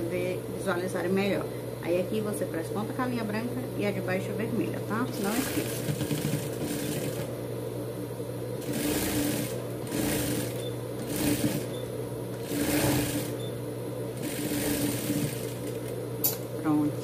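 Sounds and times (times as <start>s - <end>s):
sewing machine running: 5.2s - 7.3s, 8.6s - 13.4s, 14.2s - 16.0s.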